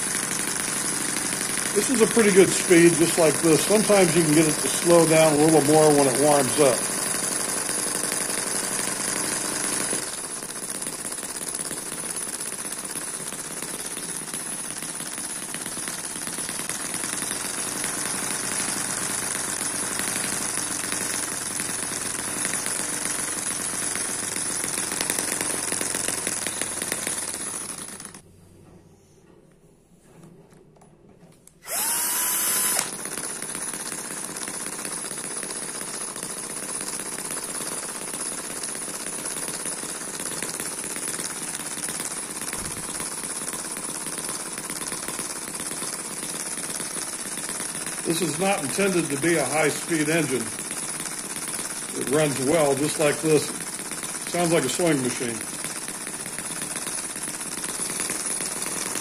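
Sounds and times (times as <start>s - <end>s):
mini engine running: 0.0s - 28.2s, 31.6s - 59.0s.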